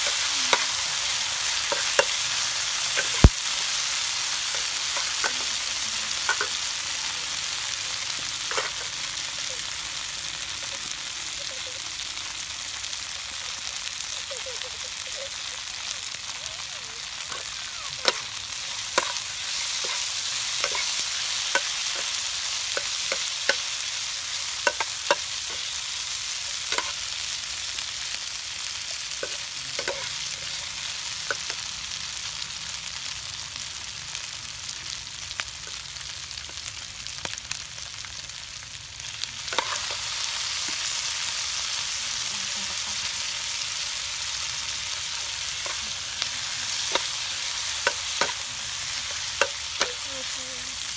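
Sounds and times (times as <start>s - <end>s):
meat sizzling in hot oil: 0.0s - 50.9s
metal spatula scraping pan: 19.0s - 22.2s.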